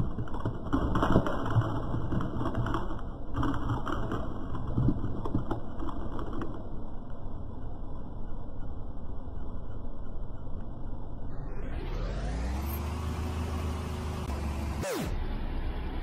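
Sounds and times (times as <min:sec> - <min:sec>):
car tyre crushing foil-wrapped eggs: 0:00.0 - 0:07.0.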